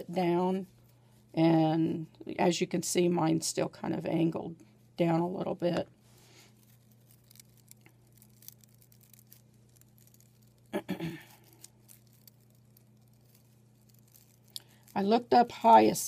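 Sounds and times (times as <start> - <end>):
low steady hum: 0.0 - 16.0
paper rustling and crinkling: 6.2 - 10.7, 11.4 - 15.0.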